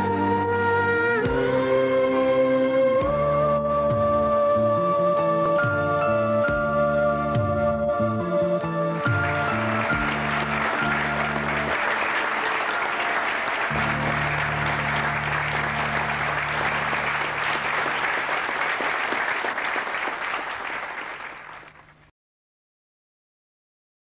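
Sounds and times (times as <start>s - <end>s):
background music with low notes: 0.0s - 18.1s
applause: 9.0s - 22.1s.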